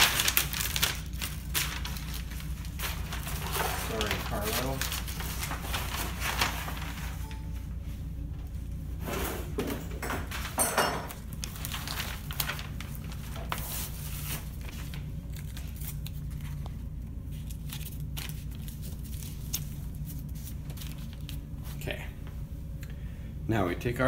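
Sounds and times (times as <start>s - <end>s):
paper rustling: 0.0s - 7.6s, 10.2s - 21.8s
low room hum: 0.0s - 24.0s.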